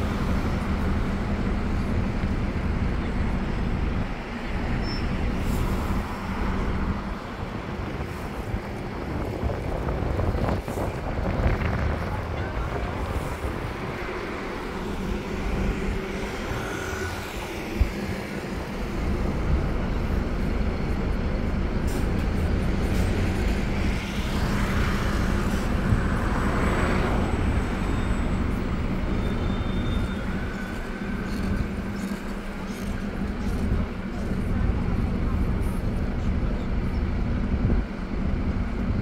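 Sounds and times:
bus engine and road rumble: 0.0s - 39.0s
traffic noise: 0.0s - 39.0s.

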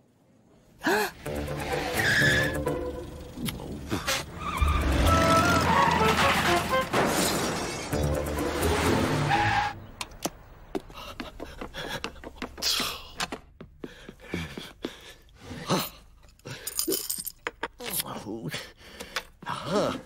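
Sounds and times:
cartoon music: 1.2s - 3.3s.

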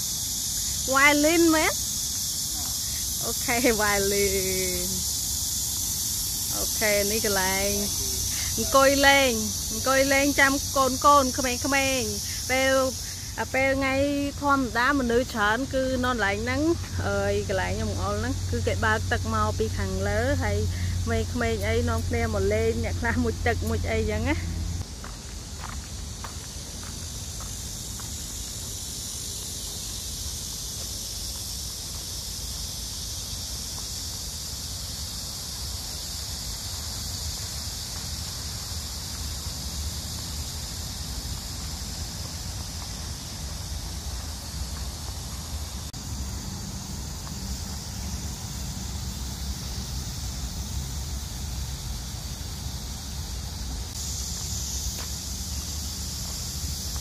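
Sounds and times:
insects chirring: 0.0s - 57.0s.

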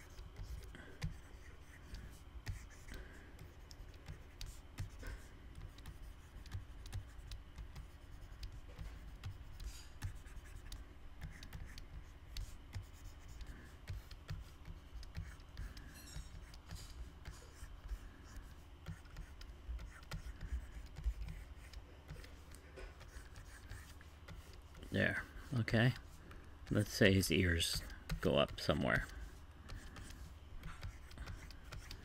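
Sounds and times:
stylus scratching on tablet: 0.0s - 32.0s.

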